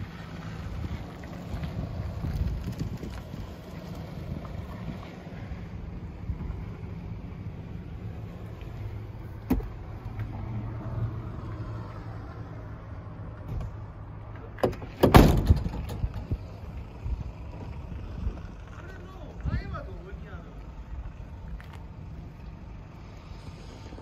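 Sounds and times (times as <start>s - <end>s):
truck door slamming: 9.4s - 9.8s, 14.6s - 16.4s
low rumble: 15.3s - 24.0s.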